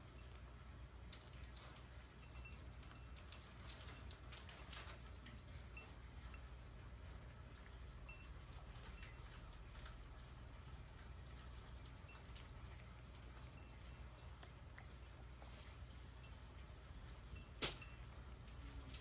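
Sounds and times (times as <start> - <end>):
cat lapping and chewing: 0.0 - 19.0
ringing clink on bowl: 1.2 - 5.0, 8.0 - 9.6, 12.0 - 19.0.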